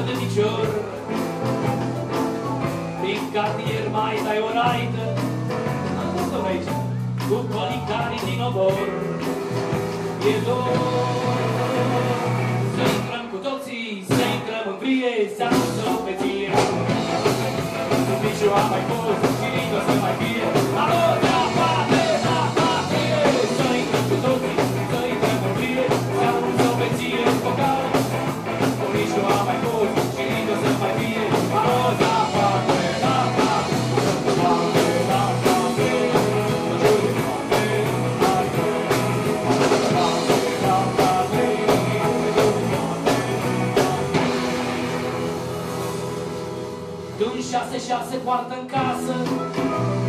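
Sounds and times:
live rock band playing: 0.0s - 50.0s
wavering melodic lead line: 16.6s - 47.6s.

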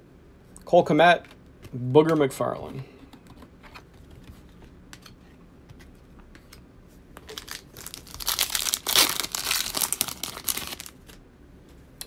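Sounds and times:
foil wrapper tearing and crinkling: 7.3s - 11.2s.

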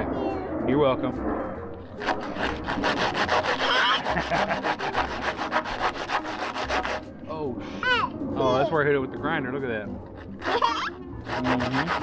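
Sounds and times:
sandpaper sanding metal tube: 2.0s - 7.1s, 10.2s - 12.0s.

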